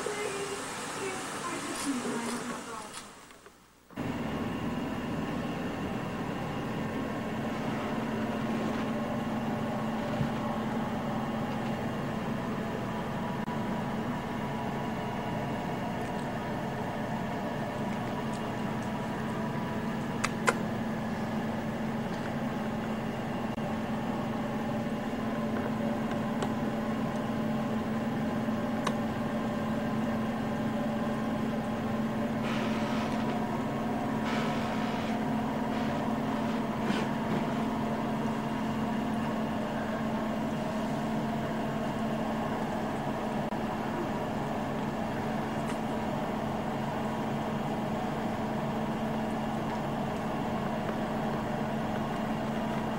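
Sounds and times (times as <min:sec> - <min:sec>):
rustling hiss: 0:00.0 - 0:03.6
low mechanical hum: 0:00.0 - 0:52.9.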